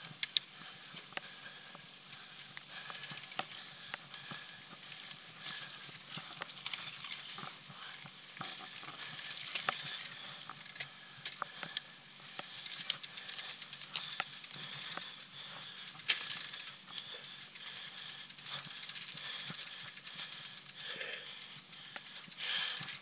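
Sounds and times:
bike clicks: 0.0s - 23.0s
tyres crackling on dirt: 0.1s - 23.0s
freewheel ratchet ticking: 2.4s - 3.6s, 10.5s - 10.8s, 12.4s - 23.0s.

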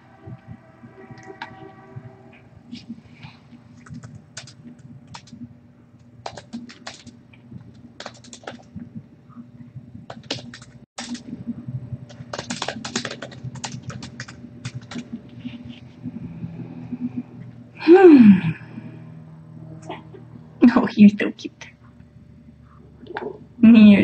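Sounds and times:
steady low hum: 0.0s - 24.0s
typing on computer keyboard: 3.8s - 5.4s, 6.2s - 8.7s, 10.1s - 11.2s, 12.1s - 15.1s.

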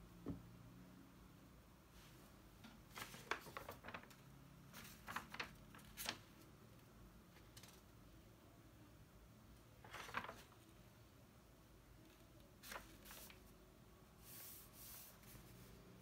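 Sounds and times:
paper pages rustling: 2.9s - 6.5s, 9.8s - 10.7s, 12.1s - 13.5s.

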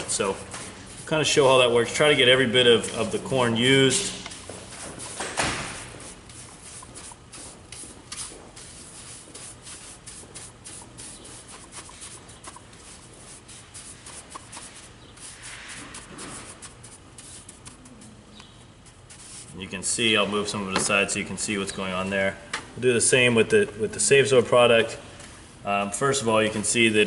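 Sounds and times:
hand brush scrubbing granules: 1.0s - 18.0s, 18.9s - 20.3s.

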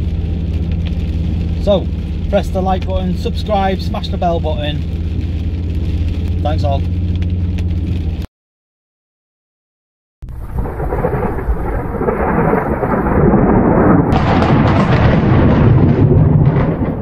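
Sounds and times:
loud rumbling: 0.0s - 8.3s, 10.2s - 17.0s.

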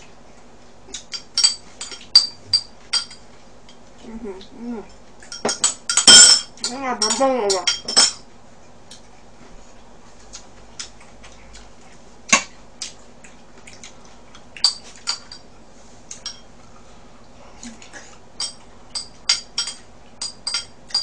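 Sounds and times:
utensils clinking against dishes: 1.0s - 3.3s, 5.2s - 8.3s, 14.6s - 15.5s, 16.1s - 16.5s, 18.4s - 21.0s.

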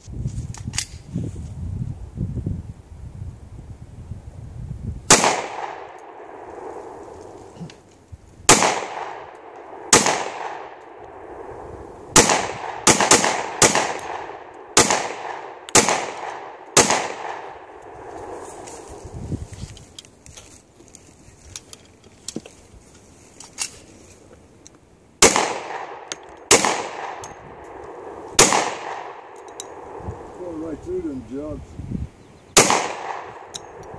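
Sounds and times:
pistol shots with echo: 5.1s - 6.8s, 8.5s - 11.3s, 12.1s - 17.7s, 25.2s - 30.0s, 32.6s - 33.8s.

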